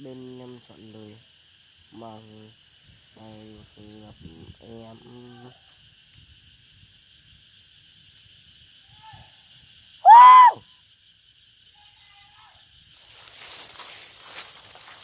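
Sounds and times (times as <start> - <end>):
high insect drone: 0.0 - 15.0
whistle-like animal call: 10.0 - 10.6.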